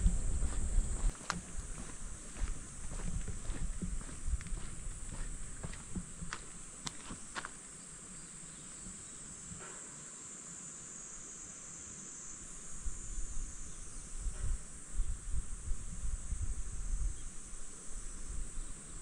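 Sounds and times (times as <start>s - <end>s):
wind rumble on microphone: 0.0s - 6.6s, 12.7s - 19.0s
cicadas droning: 0.0s - 19.0s.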